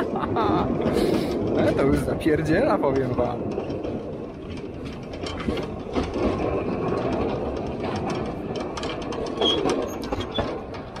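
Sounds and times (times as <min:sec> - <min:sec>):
train wheels rumbling on track: 0:00.0 - 0:11.0
short clicks of wheels: 0:03.0 - 0:11.0.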